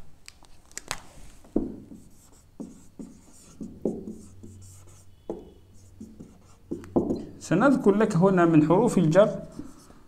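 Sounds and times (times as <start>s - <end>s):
marker squeaking on whiteboard: 1.8s - 7.9s, 9.2s - 10.0s
marker tip tapping board: 5.2s - 7.2s.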